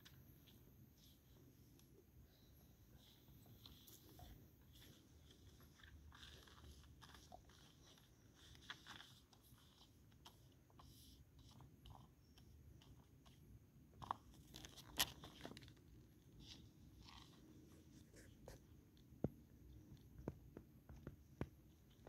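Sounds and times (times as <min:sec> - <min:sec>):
paper crackling and tapping: 0:03.6 - 0:13.4.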